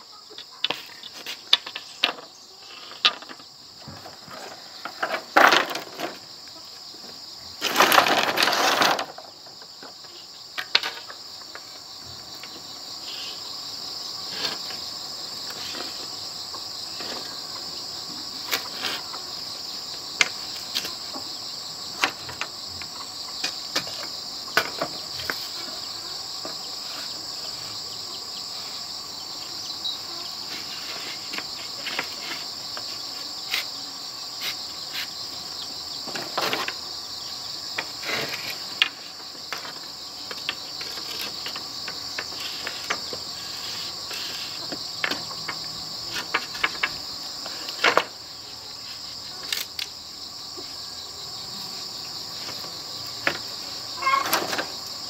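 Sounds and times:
high-pitched insect chorus: 0.0 - 55.0
bamboo poles clicking and knocking: 0.3 - 6.3, 7.6 - 11.7, 20.2 - 21.2, 21.9 - 25.7, 37.7 - 43.3, 44.1 - 48.2, 52.4 - 54.8.

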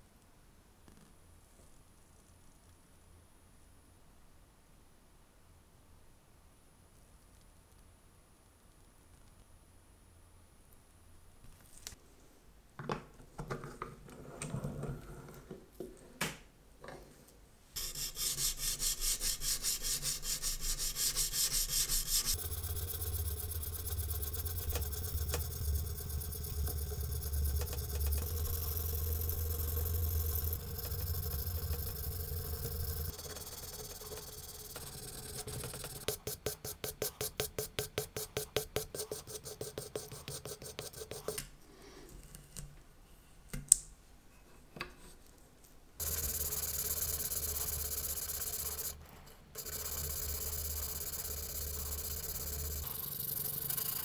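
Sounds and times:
sanding block rubbing on steel: 17.8 - 23.2.

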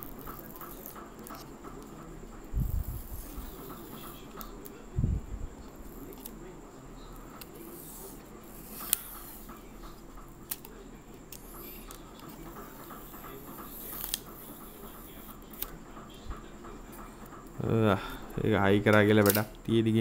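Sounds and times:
plastic clicks: 18.9 - 19.7.

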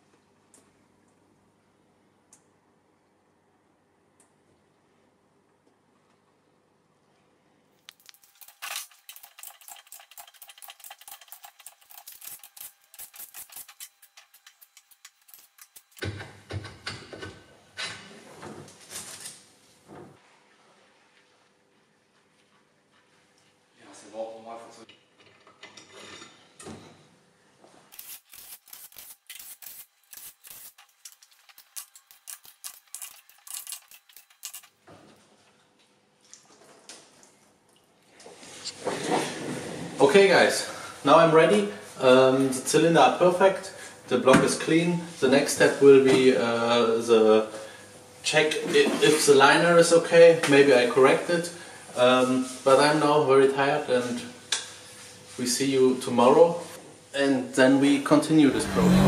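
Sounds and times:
metallic clicking and rattling: 7.9 - 16.0
hose nozzle hissing bursts: 27.9 - 34.6.

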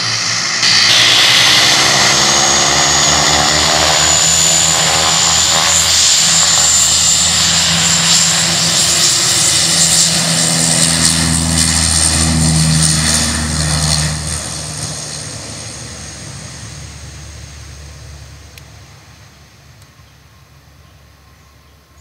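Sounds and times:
turboprop airliner rolling: 0.0 - 22.0.

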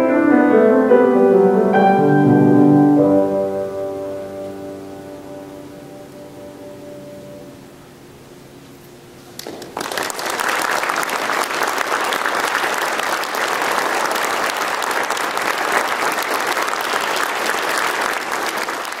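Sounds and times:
sung chord: 0.0 - 7.9
audience applause: 9.4 - 19.0.

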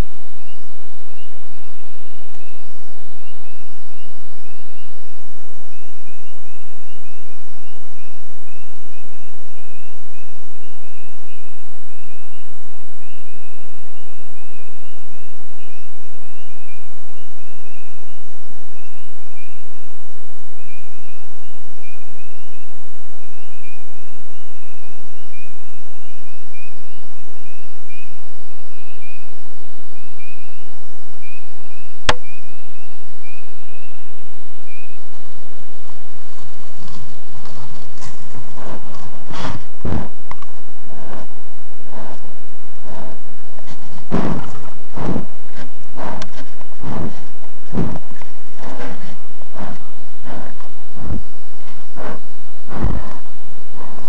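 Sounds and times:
microphone hiss: 0.0 - 54.0
high animal chirps: 37.4 - 54.0.

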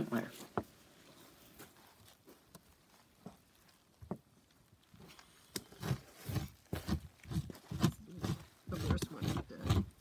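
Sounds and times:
shell scraping fish skin: 5.0 - 10.0.

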